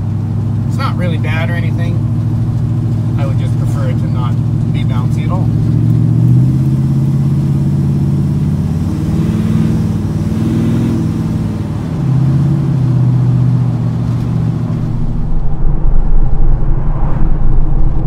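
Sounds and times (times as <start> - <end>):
pickup engine drone: 0.0 - 18.0
uneven low rumble: 13.9 - 18.0.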